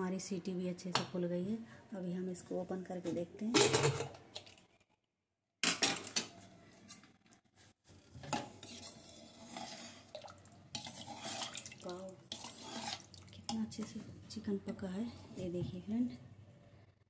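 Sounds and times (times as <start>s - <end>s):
ladle stirring liquid: 8.1s - 14.1s.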